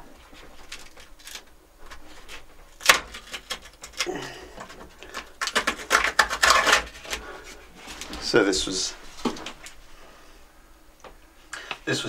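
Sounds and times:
plastic film crinkling and crackling: 0:00.1 - 0:09.8.

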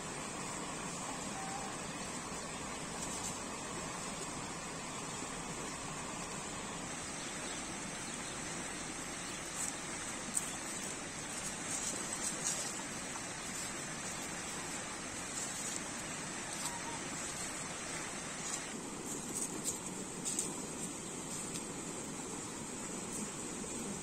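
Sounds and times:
stream rushing over rocks: 0:00.1 - 0:23.2
dry leaves crackling: 0:01.3 - 0:03.6, 0:09.3 - 0:21.7.

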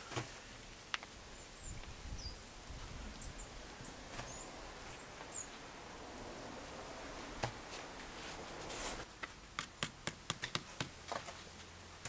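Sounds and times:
faint outdoor background noise: 0:00.0 - 0:12.0
small bird chirping: 0:01.3 - 0:05.6.

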